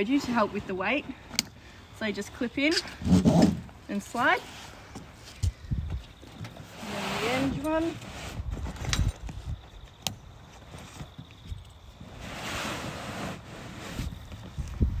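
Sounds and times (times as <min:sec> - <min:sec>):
tent fabric rustling: 0:12.0 - 0:14.9.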